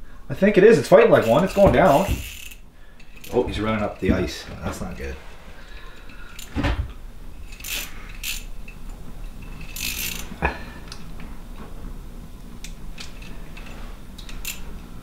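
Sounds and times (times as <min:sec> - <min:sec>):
fishing reel ratcheting: 0:01.2 - 0:04.0, 0:07.4 - 0:10.4, 0:12.6 - 0:14.8.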